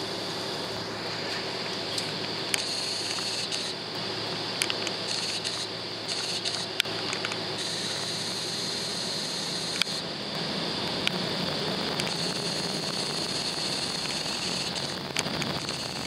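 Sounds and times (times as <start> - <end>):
jet engine and cabin air hum: 0.0 - 16.0
sharp clicks and rattles: 4.6 - 8.1.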